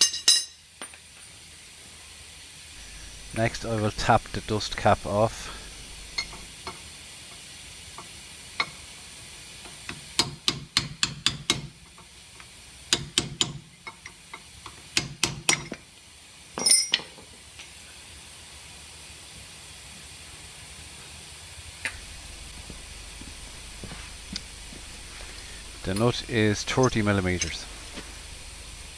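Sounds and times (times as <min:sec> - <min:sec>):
ringing metal clink: 0:16.6 - 0:17.1.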